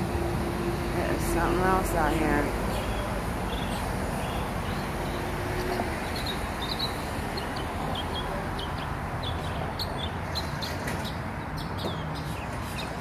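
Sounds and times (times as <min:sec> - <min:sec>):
small birds chirping: 0:02.7 - 0:13.0.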